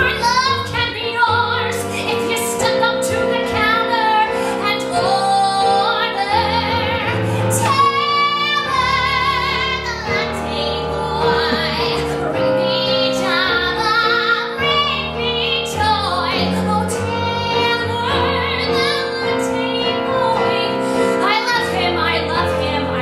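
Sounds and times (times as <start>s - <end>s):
woman singing with vibrato: 0.0s - 23.0s
instrumental accompaniment: 5.2s - 23.0s.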